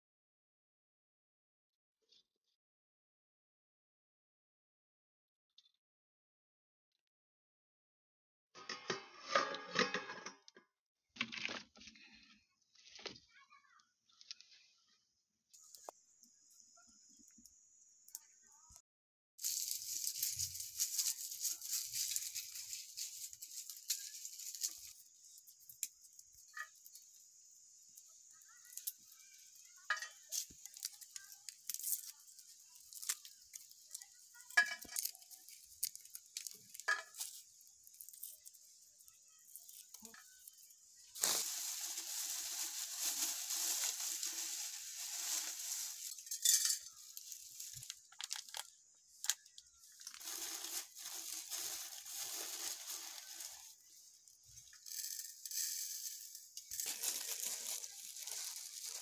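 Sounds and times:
garlic skins crackling and rustling: 0:19.4 - 0:59.0.

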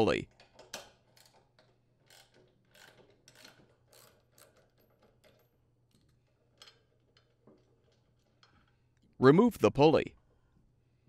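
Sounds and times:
ratchet wrench clicking: 0:00.8 - 0:05.2.

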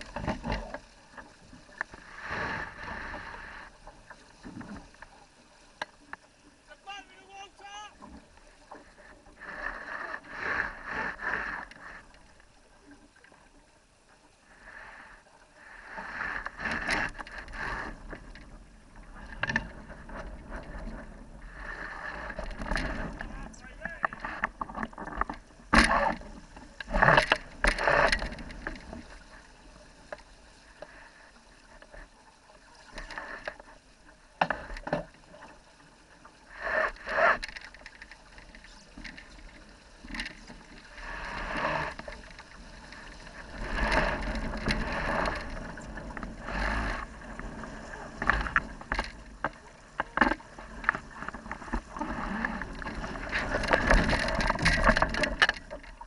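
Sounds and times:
water and wind hiss: 0:00.0 - 0:56.0
water slapping against hull: 0:16.0 - 0:30.9, 0:36.8 - 0:56.0.

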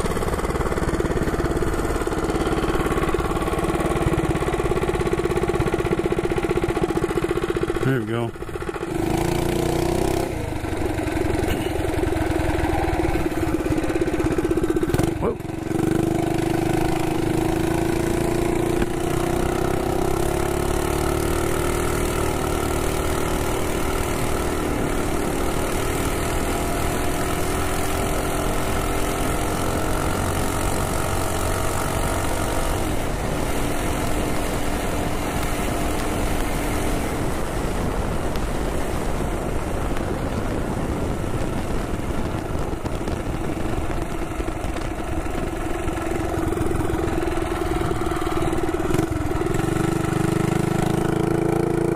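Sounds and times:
minibike engine revving: 0:00.0 - 0:51.9
wind on microphone: 0:36.4 - 0:50.6.

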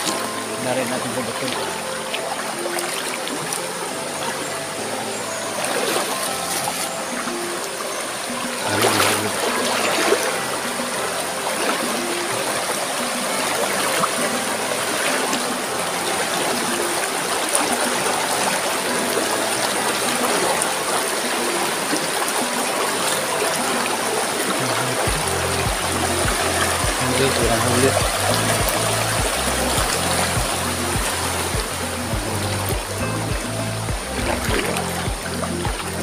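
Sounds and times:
stream rushing over rapids: 0:00.0 - 0:36.0.

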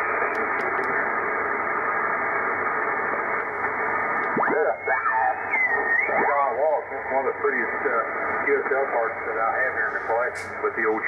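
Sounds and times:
radio static hiss: 0:00.0 - 0:11.0
garbled radio voice: 0:04.3 - 0:11.0.

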